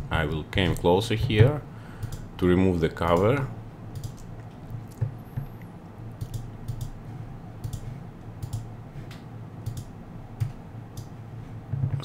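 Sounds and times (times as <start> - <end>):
low steady hum: 0.0 - 12.0
computer mouse clicking: 2.0 - 2.3, 3.9 - 5.6, 6.2 - 7.0, 7.6 - 11.1.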